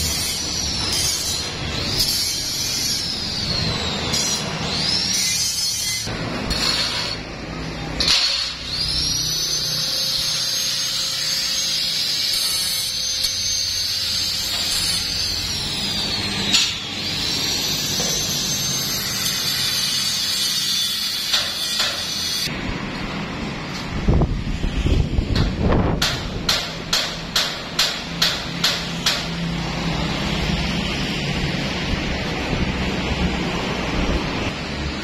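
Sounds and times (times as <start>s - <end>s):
angle grinder whining: 0.0s - 22.5s.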